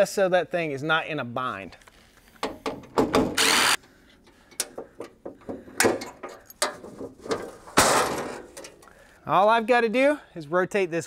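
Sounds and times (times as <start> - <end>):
cordless drill spinning: 3.4 - 3.8.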